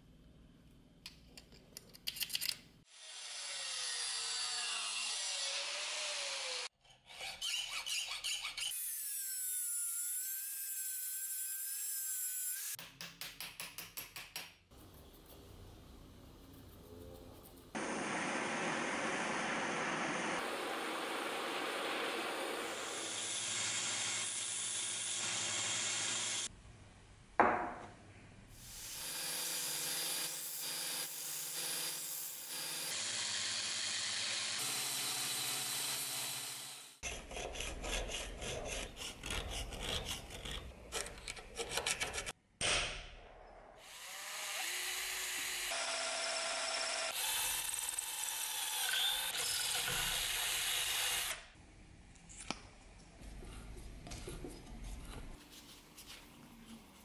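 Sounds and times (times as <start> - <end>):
file rasping on metal: 7.0 - 9.4, 37.0 - 42.4.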